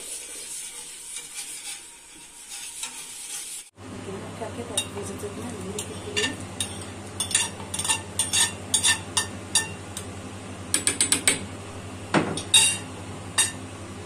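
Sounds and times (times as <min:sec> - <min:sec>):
metal spoon clinking on pot: 0:05.8 - 0:09.8, 0:12.4 - 0:13.6.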